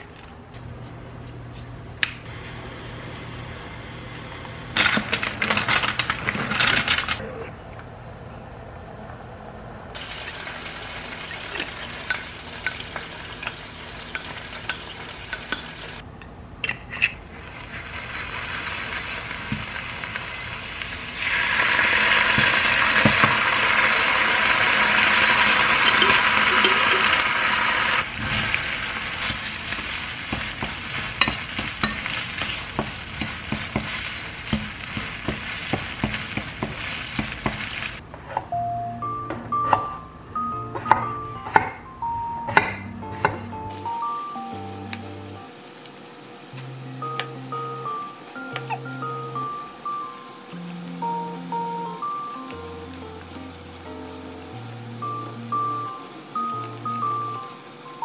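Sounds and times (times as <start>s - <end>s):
food sizzling in a frying pan: 10.0s - 16.0s, 17.3s - 38.0s, 43.7s - 58.0s.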